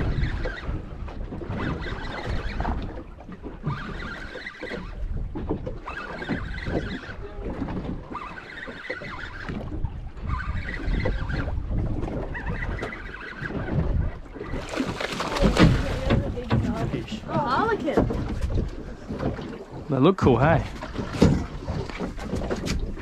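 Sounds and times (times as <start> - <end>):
wind buffeting microphone: 0.0 - 4.2, 9.0 - 23.0
water slapping boat hull: 0.0 - 23.0
fishing reel whirring: 8.1 - 11.6.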